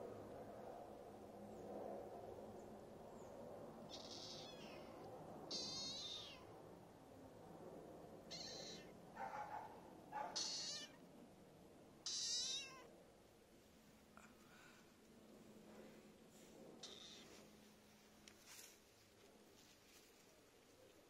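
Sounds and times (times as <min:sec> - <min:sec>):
high-pitched wavering animal calls: 0:03.9 - 0:06.4, 0:08.3 - 0:08.9, 0:10.4 - 0:11.0, 0:12.0 - 0:12.9, 0:16.8 - 0:17.4.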